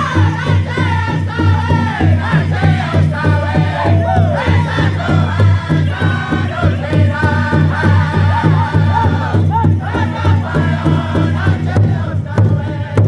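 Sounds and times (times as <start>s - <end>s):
big drum fast beat: 0.0s - 13.0s
group singing in high voices: 0.0s - 13.0s.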